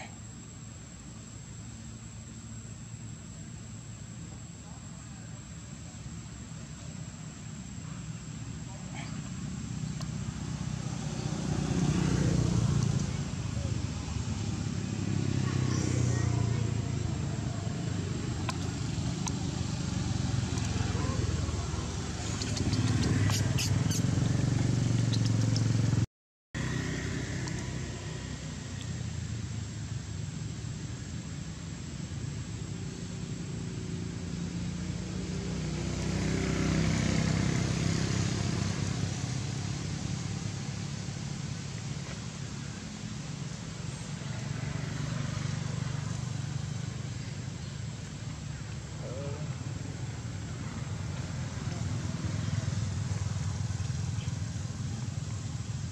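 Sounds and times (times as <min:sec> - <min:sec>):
low motor rumble: 0:00.3 - 0:35.3, 0:38.3 - 0:55.9.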